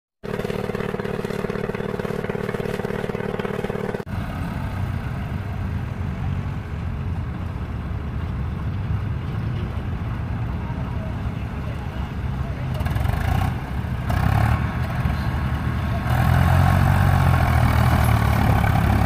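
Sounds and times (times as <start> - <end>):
steady drone: 0.2 - 4.1
tractor diesel engine rumbling: 0.2 - 19.0.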